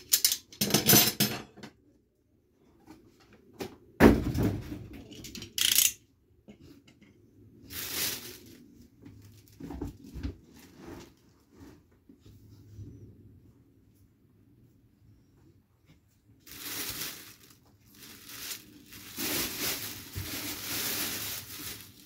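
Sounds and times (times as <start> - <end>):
packaging being moved: 16.4 - 22.0.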